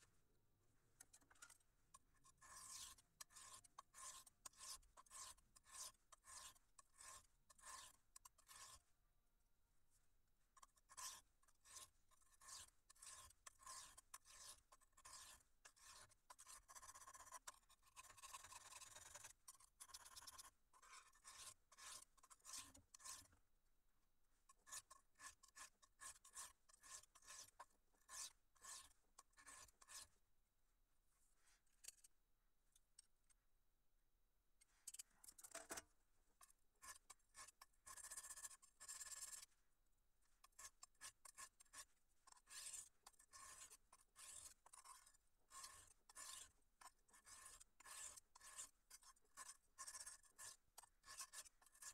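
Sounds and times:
knife scraping on sharpening stone: 2.2 - 8.8, 10.6 - 23.3, 24.7 - 30.1, 40.6 - 51.9.

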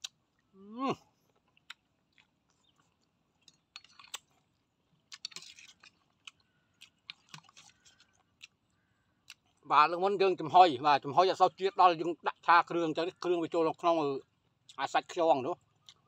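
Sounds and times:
wet chewing clicks and smacks: 0.0 - 0.2, 1.2 - 9.7, 15.6 - 16.0.

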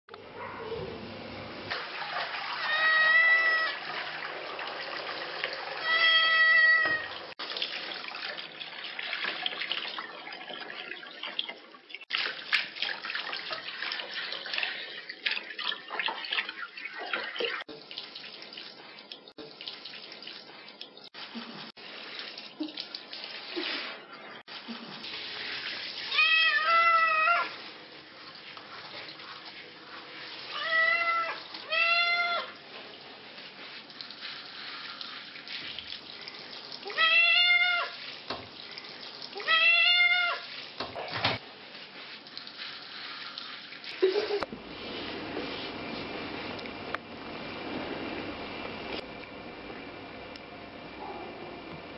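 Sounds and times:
shower spraying water: 1.5 - 10.1, 12.0 - 49.0
cat meowing loudly: 2.6 - 3.8, 5.8 - 7.2, 26.1 - 27.5, 30.5 - 32.5, 36.9 - 38.0, 39.4 - 40.4.

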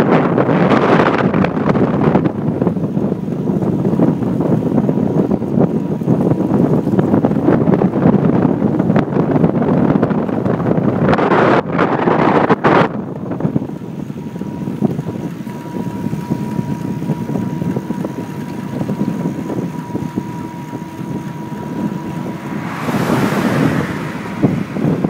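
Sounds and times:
wind rushing over microphone: 0.0 - 25.0
faint steady tone: 13.8 - 25.0.

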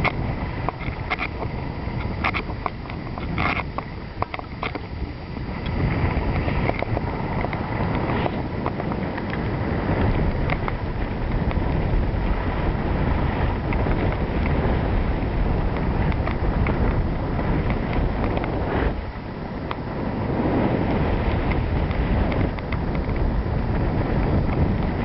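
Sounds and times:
faint clicks: 0.0 - 4.9, 5.6 - 12.4, 15.7 - 17.0, 17.6 - 18.6, 21.2 - 23.3
wind buffeting microphone: 0.0 - 25.0.

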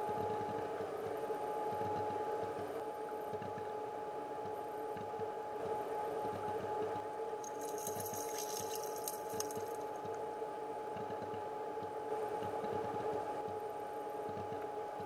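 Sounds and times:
thin steady tone: 7.4 - 9.9
water flowing over gravel underwater: 7.5 - 10.0.

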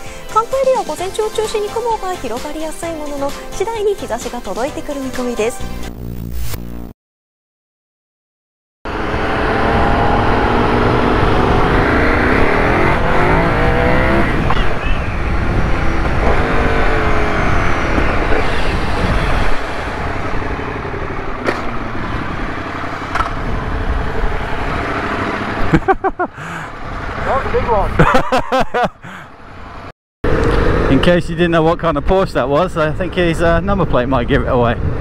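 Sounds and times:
motorcycle engine accelerating: 8.9 - 32.1
wind and road noise: 8.9 - 35.0.

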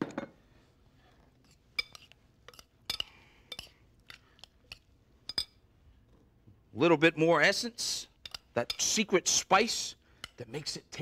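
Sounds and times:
metal spoon clinking on glass bowl: 1.8 - 3.7, 5.3 - 5.6.

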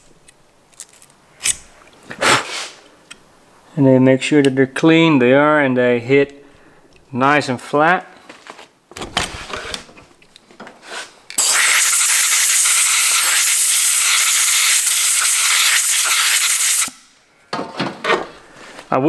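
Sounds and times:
compressed air hissing: 10.8 - 17.1.

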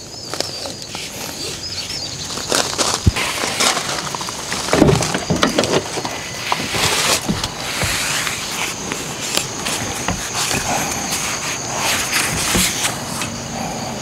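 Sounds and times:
small bird chirping: 0.0 - 2.8
knocks and thumps: 3.0 - 11.1, 12.2 - 13.0.

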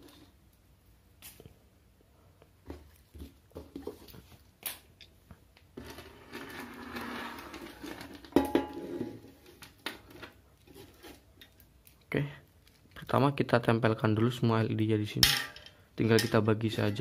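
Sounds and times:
scraping and sliding on tabletop: 5.8 - 8.2.

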